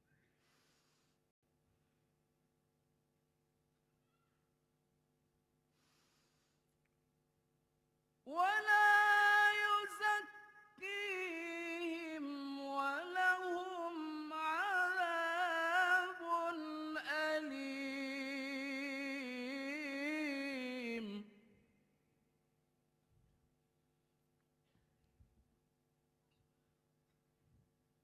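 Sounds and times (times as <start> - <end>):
man reciting melodically into microphone: 8.3 - 21.4.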